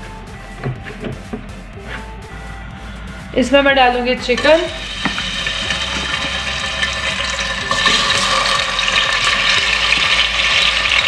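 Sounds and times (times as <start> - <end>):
chicken sizzling in hot oil: 4.4 - 11.0.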